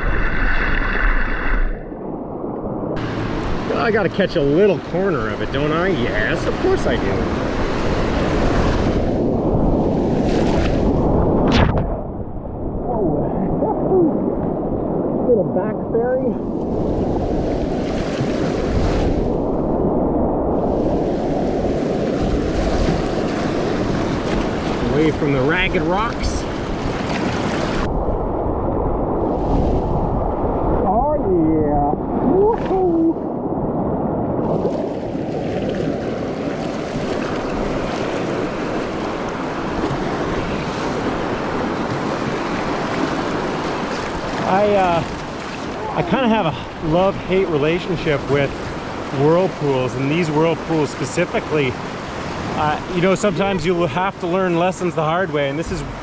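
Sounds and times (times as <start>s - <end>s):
wind buffeting microphone: 0.0s - 50.8s
whitewater rapids rushing: 37.0s - 51.8s.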